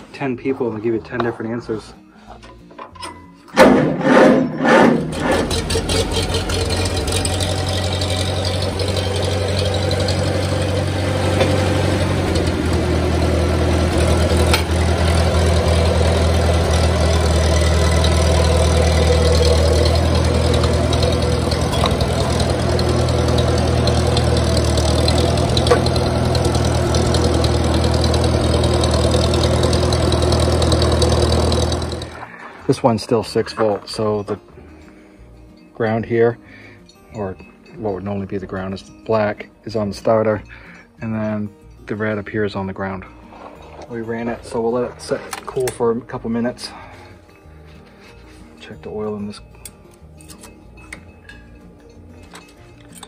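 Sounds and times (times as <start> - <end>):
tractor engine running: 3.5 - 34.7, 42.1 - 53.0.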